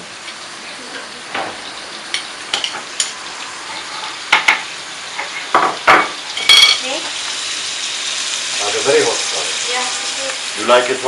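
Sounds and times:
onion and garlic sizzling: 0.0 - 11.0
utensil scraping pot: 2.2 - 4.6.

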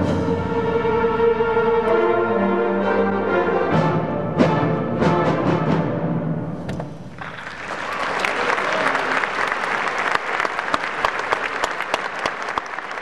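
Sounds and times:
audience applause: 7.2 - 13.0.

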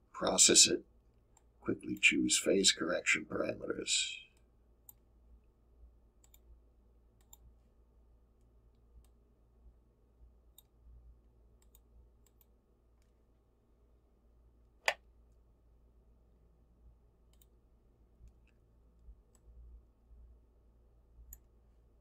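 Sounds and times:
low steady hum: 0.0 - 22.0
computer mouse clicks: 6.2 - 6.5, 7.2 - 7.5, 10.5 - 10.8, 11.6 - 13.2, 14.8 - 15.1, 17.3 - 17.6, 21.2 - 21.5.

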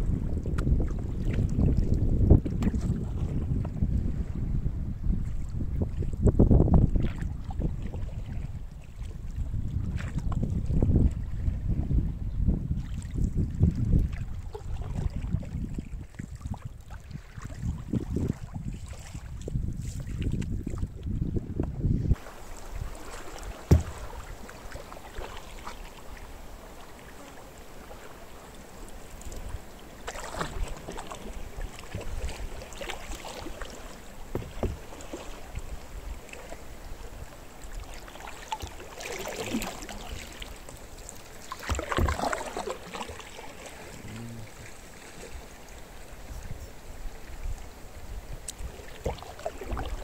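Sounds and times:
paddles splashing in water: 0.1 - 4.4, 12.8 - 50.0
sharp knock: 23.7 - 24.0.

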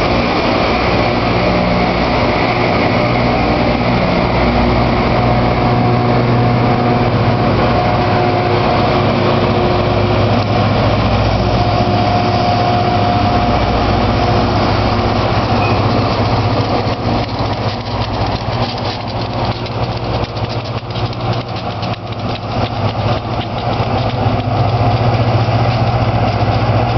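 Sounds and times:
dense rushing noise: 0.0 - 26.9
diesel engine drone: 0.0 - 26.9
fast irregular clatter: 14.9 - 26.9.

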